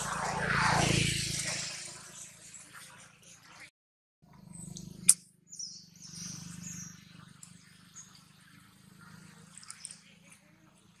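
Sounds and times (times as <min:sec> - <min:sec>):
high chirping calls: 0:04.3 - 0:11.0
sharp click: 0:04.7 - 0:05.3.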